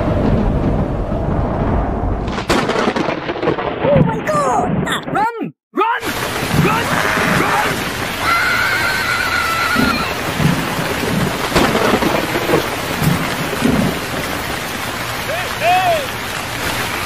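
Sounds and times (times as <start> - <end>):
thunder rumbling: 0.0 - 5.1, 6.0 - 17.0
sharp thunder crack: 0.0 - 5.2, 6.1 - 8.0, 9.8 - 14.4
rain pouring: 5.8 - 17.0
horse whinnying: 6.8 - 10.2.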